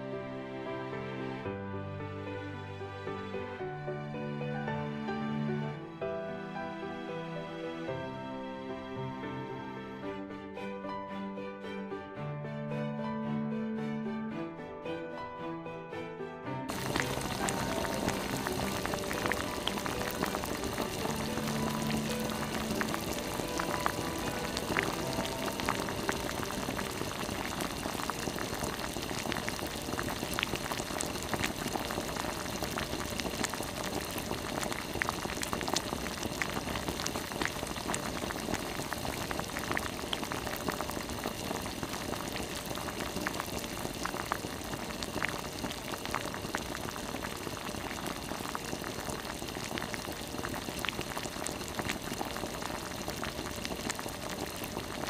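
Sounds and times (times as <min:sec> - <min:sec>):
pot boiling with bubbling and pops: 0:16.7 - 0:55.0.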